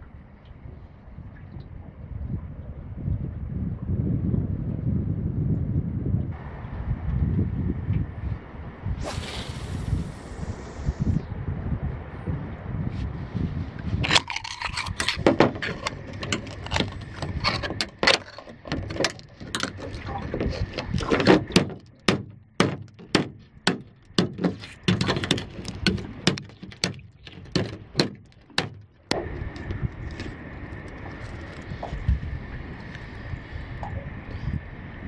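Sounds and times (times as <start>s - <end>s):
knife scraping shell: 14.0s - 22.0s, 22.9s - 28.8s.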